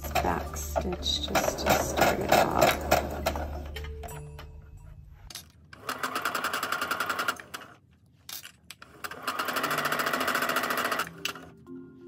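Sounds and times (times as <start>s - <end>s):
sewing machine stitching: 0.0s - 3.7s, 5.8s - 7.7s, 8.8s - 11.4s.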